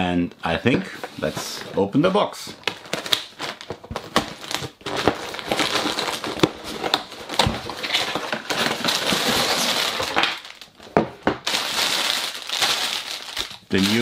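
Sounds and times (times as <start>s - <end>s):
cardboard rustling and tearing: 2.6s - 10.7s, 11.4s - 14.0s.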